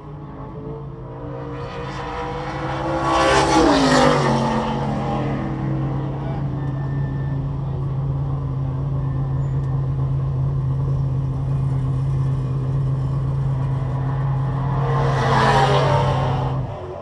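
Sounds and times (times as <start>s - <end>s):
car rushing past: 0.2s - 7.7s, 12.1s - 17.0s
car engine idling: 4.8s - 14.9s.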